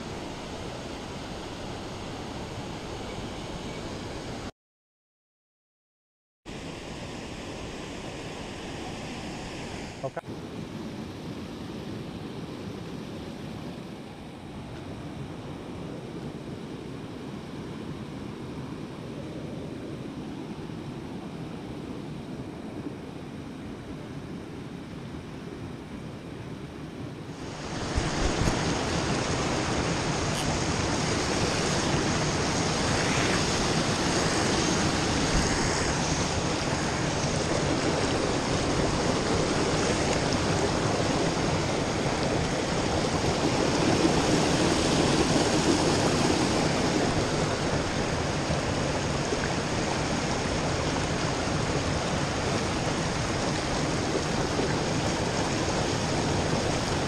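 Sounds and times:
creek water rushing over rocks: 0:27.4 - 0:57.0.

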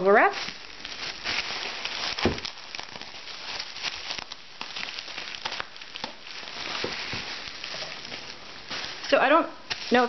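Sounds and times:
bubble wrap clicks: 0:00.0 - 0:10.0
bubble wrap crinkling: 0:00.0 - 0:10.0.

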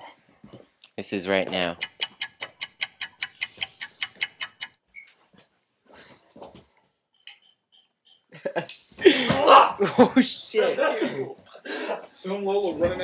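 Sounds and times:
rapid regular clicks: 0:01.6 - 0:04.8.

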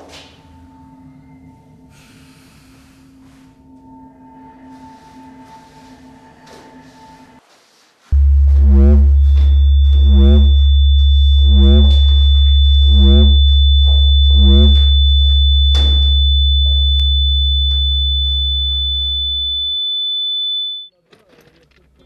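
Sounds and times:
deep electronic hum: 0:08.2 - 0:19.9
high whine: 0:08.2 - 0:20.9
wavering electronic tone: 0:08.2 - 0:20.9.

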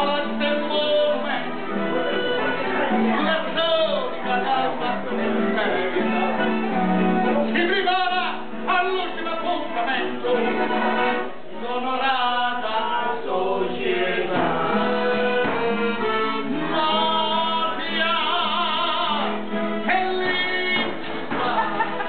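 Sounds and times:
men singing: 0:00.0 - 0:01.5, 0:02.8 - 0:06.6, 0:07.5 - 0:22.0
accordion: 0:00.0 - 0:22.0
acoustic guitar: 0:00.0 - 0:22.0.

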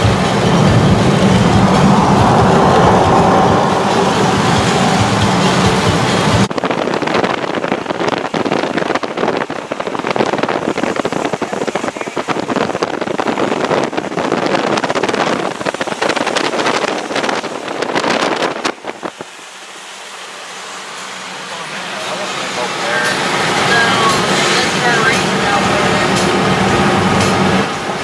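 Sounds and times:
low rumble: 0:00.0 - 0:07.4
wind buffeting microphone: 0:00.0 - 0:19.6
moving car rushing noise: 0:00.0 - 0:28.0.

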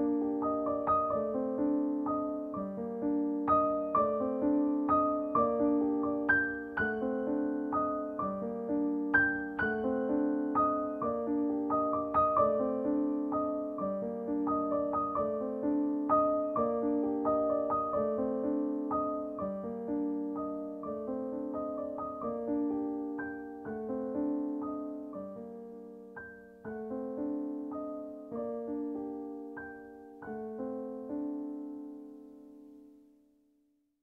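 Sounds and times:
solo piano music: 0:00.0 - 0:34.0.

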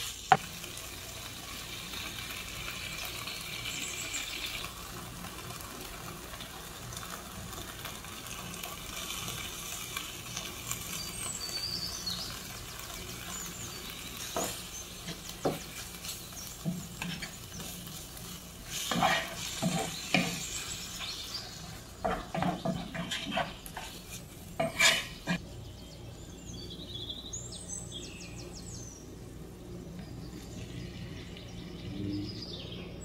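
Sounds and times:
frying sizzle: 0:00.0 - 0:25.5
wooden spatula scraping a pan: 0:12.8 - 0:25.4.

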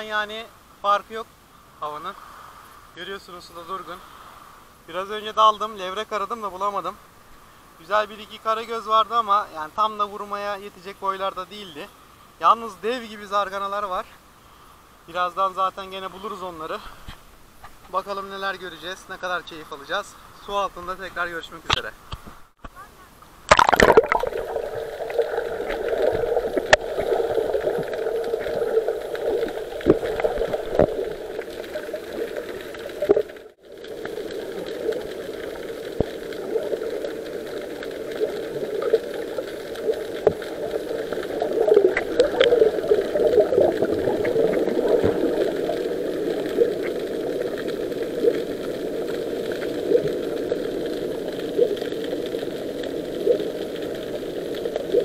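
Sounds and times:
muffled underwater rushing: 0:23.5 - 0:55.0.

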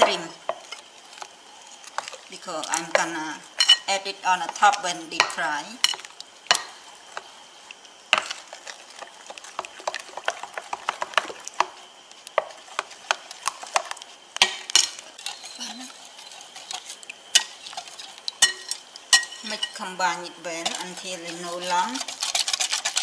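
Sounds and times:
spoon stirring batter in glass bowl: 0:14.8 - 0:19.8, 0:20.5 - 0:23.0.

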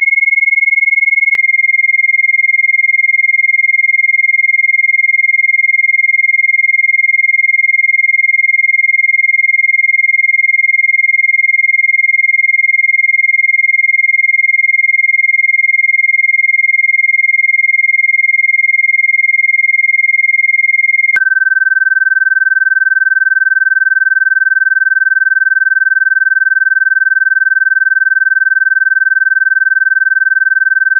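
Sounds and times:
lower steady tone: 0:20.5 - 0:30.9.

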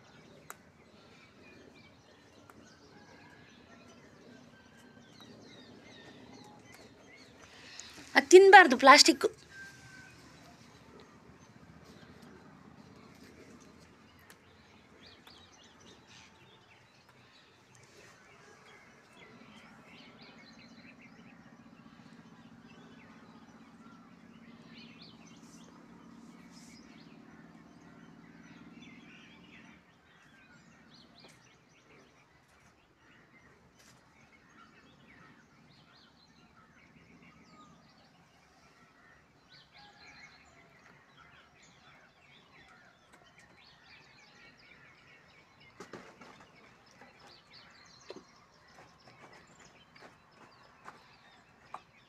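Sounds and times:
birds chirping: 0:00.0 - 0:52.0.

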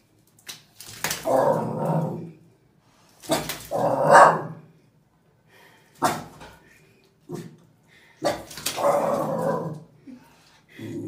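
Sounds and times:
sharp slap: 0:03.2 - 0:03.7
dog barking: 0:04.0 - 0:04.6, 0:06.0 - 0:06.4.

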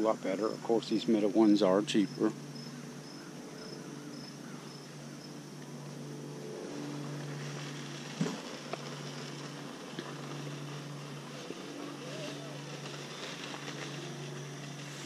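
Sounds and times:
insect chirps: 0:00.0 - 0:15.0
vehicle engine humming: 0:00.0 - 0:15.0.

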